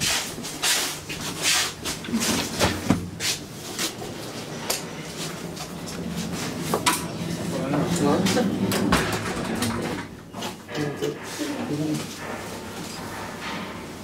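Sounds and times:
elevator low hum: 1.1s - 14.0s
footsteps and knocks on floor: 2.0s - 3.4s
elevator doors sliding open: 3.9s - 14.0s.

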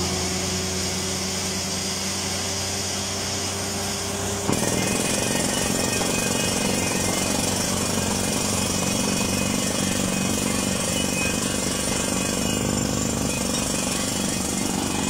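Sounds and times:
air hammer rapid hammering: 4.4s - 15.0s.

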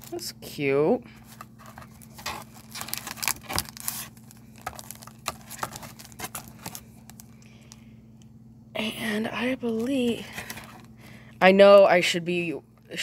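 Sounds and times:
plastic packaging crinkling: 1.2s - 7.8s.

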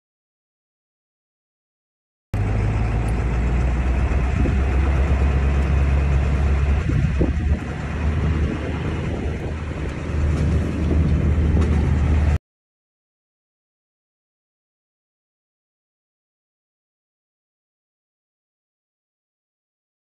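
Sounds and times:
diesel pickup truck driving: 2.4s - 12.4s
road noise: 2.4s - 12.4s.

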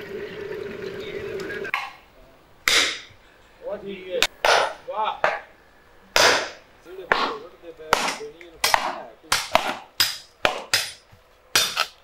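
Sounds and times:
sledgehammer striking steel wedges: 2.7s - 3.1s, 4.4s - 5.4s, 6.2s - 12.0s.

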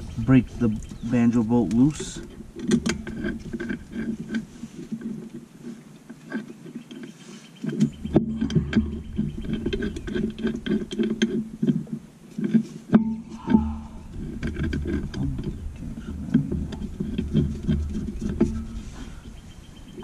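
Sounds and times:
metal clinks and knocks: 7.7s - 19.0s
steady low rumble: 13.0s - 20.0s.

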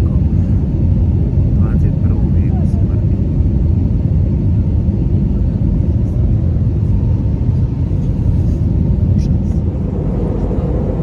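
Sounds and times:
jet engine roar in cabin: 0.0s - 11.0s.

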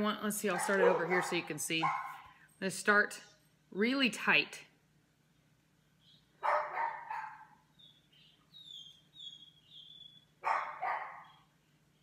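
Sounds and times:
dog barking: 0.5s - 2.2s, 6.4s - 7.6s, 10.4s - 11.4s.

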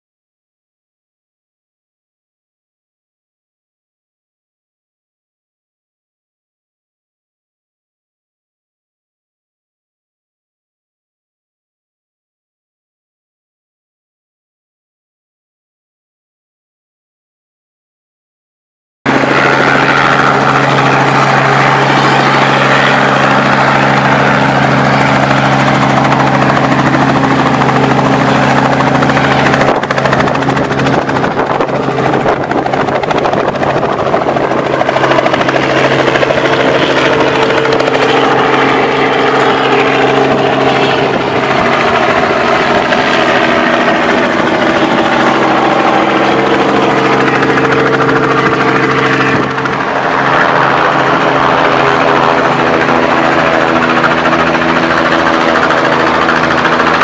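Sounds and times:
helicopter rotor and engine hum: 19.1s - 57.0s.

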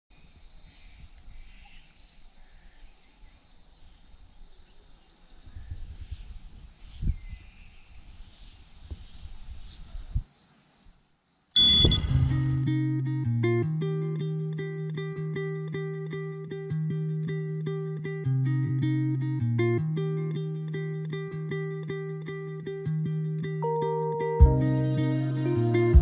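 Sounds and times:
insects trilling: 0.1s - 12.5s
thump: 11.7s - 12.7s
music with plucked guitar: 11.9s - 26.0s.

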